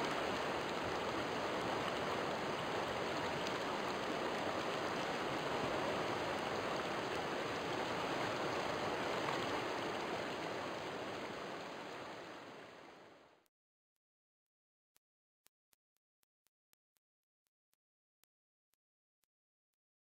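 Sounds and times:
river water flowing: 0:00.0 - 0:13.3.

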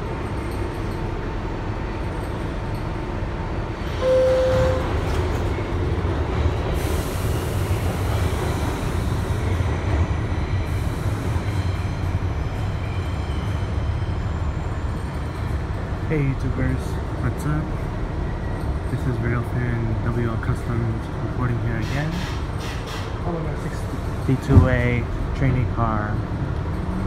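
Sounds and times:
subway car rumbling on rails: 0:00.0 - 0:27.0
short loud tone: 0:04.0 - 0:05.0.

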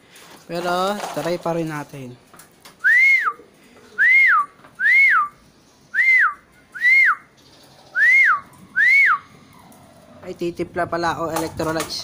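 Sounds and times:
person whistling call notes: 0:02.8 - 0:03.4, 0:04.0 - 0:05.4, 0:06.0 - 0:07.2.

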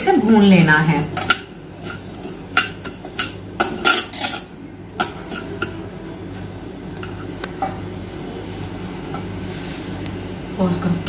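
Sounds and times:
metal spoon scraping a pan: 0:00.0 - 0:05.8
steady low hum: 0:00.0 - 0:11.0.

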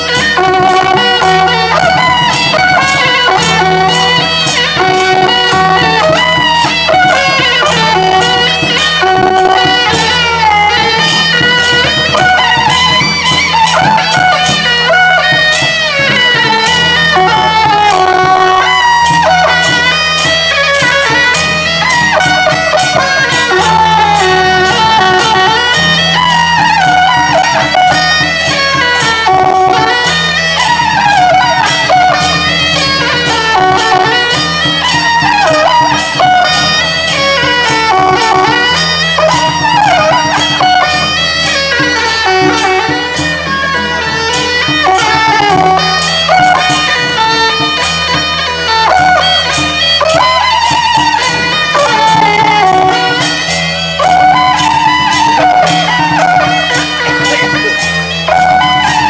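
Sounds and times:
shrill double-reed horns melody: 0:00.0 - 0:43.3, 0:44.3 - 0:59.0
percussion struck steadily: 0:00.0 - 0:59.0.

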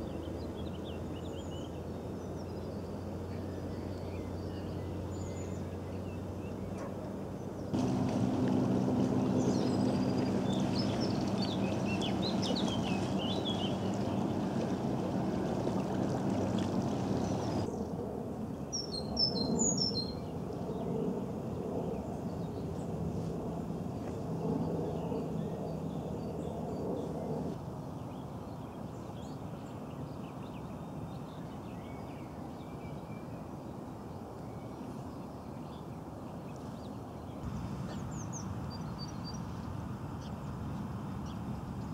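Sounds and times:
low engine hum: 0:00.0 - 0:18.2
birds chirping: 0:03.8 - 0:17.7.

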